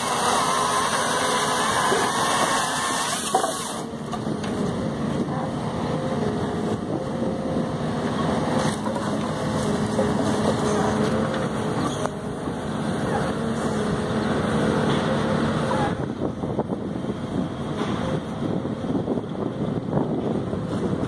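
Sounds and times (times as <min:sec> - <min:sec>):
saw cutting logs: 0:00.0 - 0:03.9
truck engine and hydraulics running: 0:00.0 - 0:21.0.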